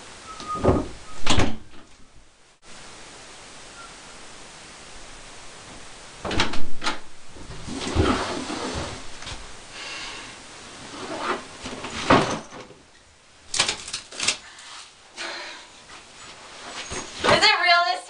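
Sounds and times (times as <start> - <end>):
door opening with clicks: 6.2 - 7.1
rustling: 7.3 - 12.8, 13.5 - 15.2, 15.8 - 17.7.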